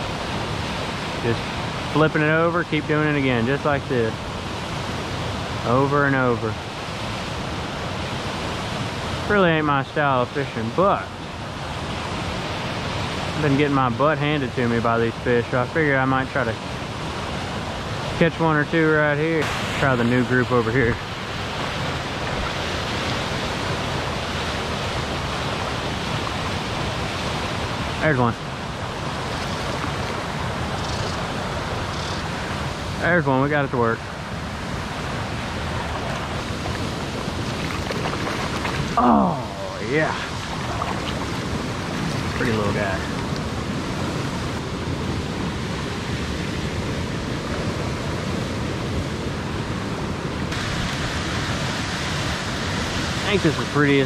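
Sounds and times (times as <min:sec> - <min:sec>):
river rushing over rocks: 0:15.8 - 0:54.0.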